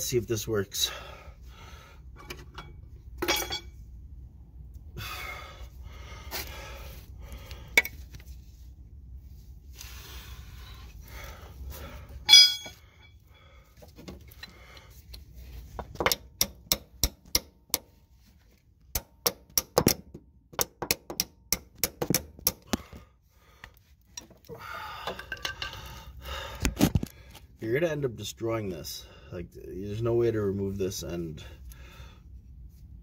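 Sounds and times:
ringing metal clink: 2.6s - 3.8s, 12.3s - 13.2s.

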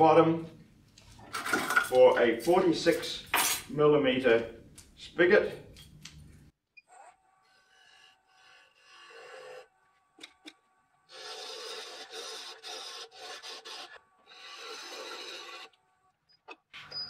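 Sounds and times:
gouge scraping wood on lathe: 7.2s - 9.8s, 11.1s - 15.9s.

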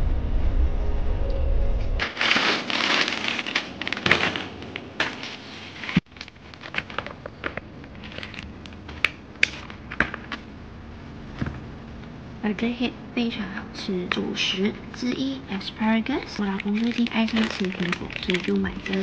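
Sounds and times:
low rumble: 0.0s - 2.4s
plastic bags rustling: 2.0s - 10.5s, 15.6s - 19.0s
plastic packaging crackling: 2.0s - 10.5s, 15.6s - 19.0s.

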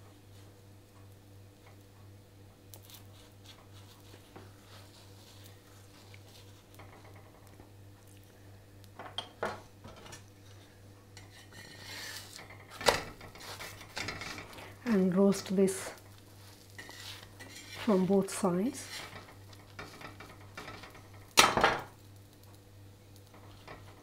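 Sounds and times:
low steady hum: 0.0s - 24.0s
scraping rustle: 10.0s - 21.0s
utensils tapping and clinking on pan: 11.2s - 14.6s, 16.8s - 22.0s, 23.2s - 24.0s.

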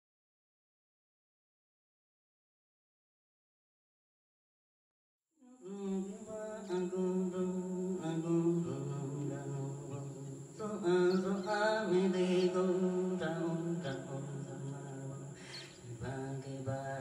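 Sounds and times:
voices humming held notes: 5.6s - 17.0s.

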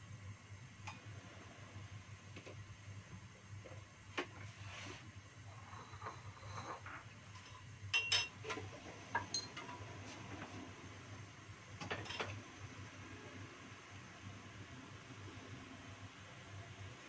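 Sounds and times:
cookware clinking: 8.0s - 8.4s, 9.2s - 9.7s.

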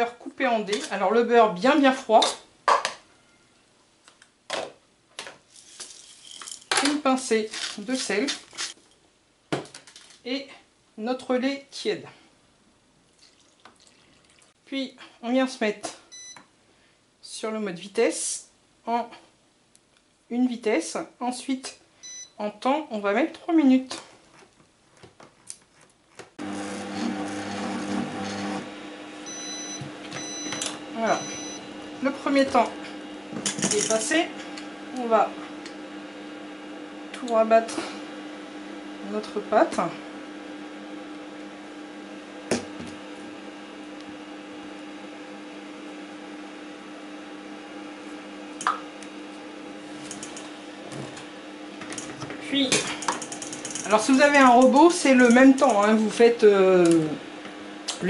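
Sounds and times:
kitchen robot motor hum: 26.4s - 36.4s, 48.0s - 58.0s
high beep: 29.3s - 31.6s.

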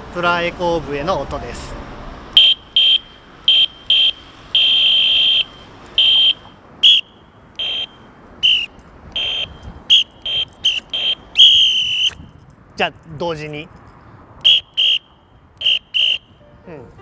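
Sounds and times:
plastic whistle blasts bending in pitch: 2.4s - 12.2s, 14.4s - 16.4s
shrill electronic whistle blasts: 2.4s - 12.2s, 14.4s - 16.3s.

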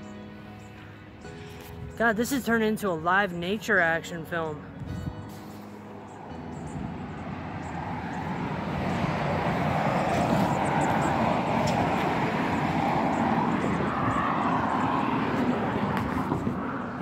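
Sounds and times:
passing motor vehicle: 4.5s - 17.0s.

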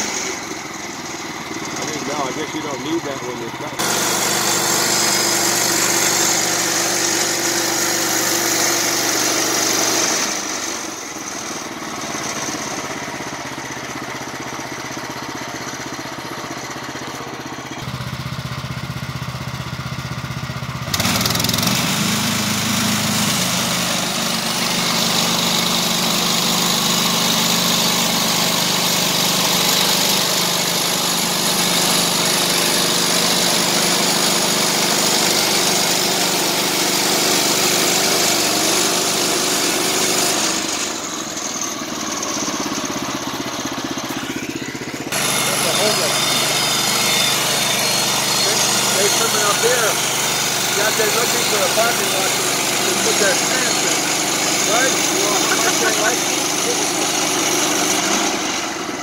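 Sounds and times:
small gasoline engine revving: 0.0s - 59.0s.

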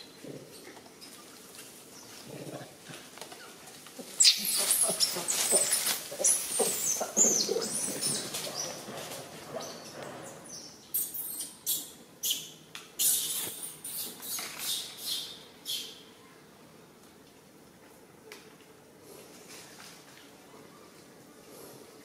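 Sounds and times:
infant monkey crying squeals: 4.2s - 8.2s.

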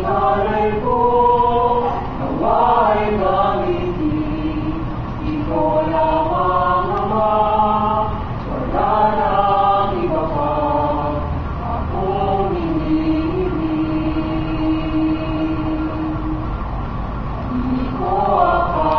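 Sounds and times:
mixed choir singing in harmony: 0.0s - 16.6s, 17.4s - 18.9s.

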